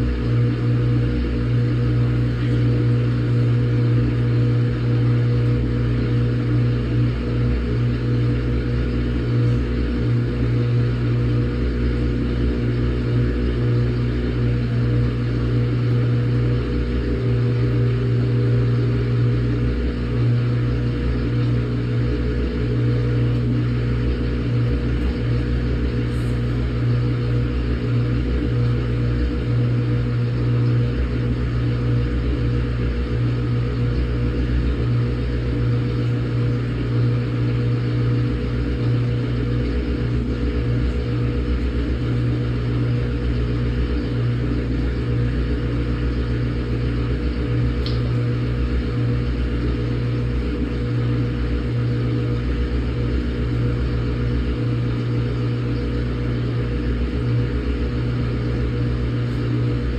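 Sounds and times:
washing machine motor hum: 0.0 - 59.9
faint tick: 47.8 - 48.0.

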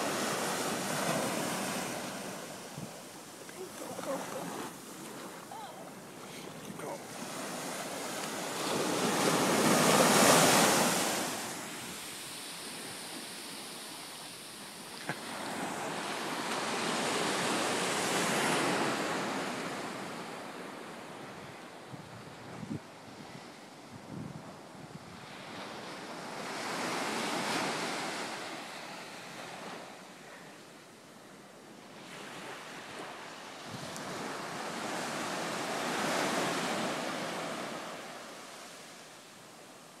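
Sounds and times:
surf washing onto sandy beach: 0.0 - 20.3, 32.0 - 40.0
wind: 0.0 - 40.0.

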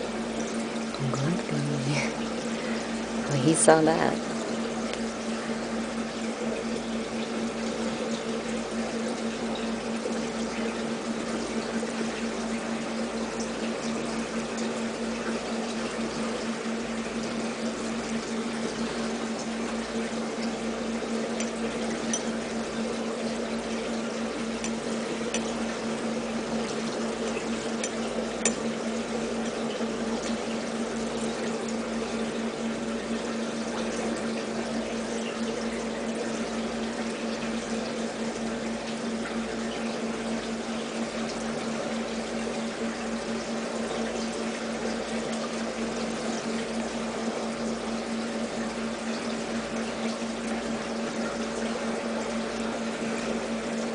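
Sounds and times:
pump low hum: 0.0 - 53.9
water trickling and splashing: 0.0 - 53.9.

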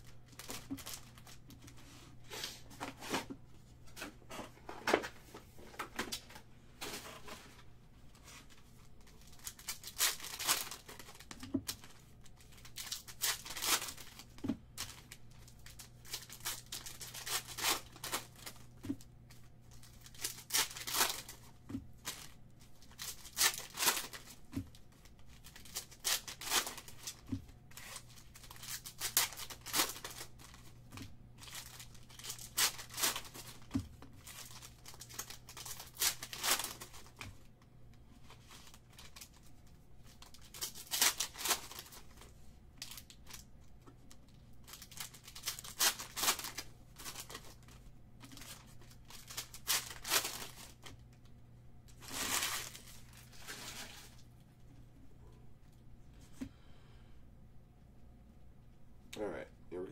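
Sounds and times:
wrappers crinkling: 0.0 - 1.8, 8.1 - 37.4, 38.2 - 51.3, 51.9 - 54.4
faint low hum: 0.0 - 59.9
card packs ripped open: 9.2 - 18.6, 19.8 - 24.5, 25.1 - 30.6, 31.4 - 37.2, 40.1 - 42.2, 42.8 - 43.4, 44.6 - 47.7, 48.3 - 50.9, 52.0 - 54.1.

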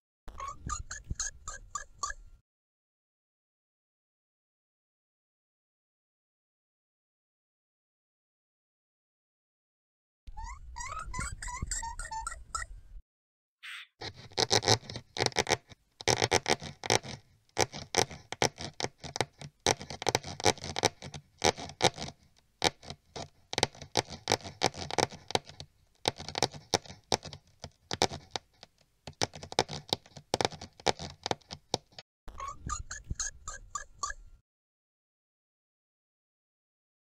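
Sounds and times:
high mouse squeaks: 0.3 - 2.3, 10.4 - 12.7, 13.6 - 22.1, 29.2 - 34.3.

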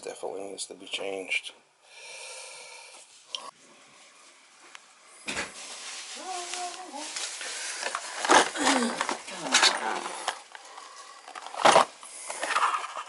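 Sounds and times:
plastic bottle rustling: 5.2 - 13.0.

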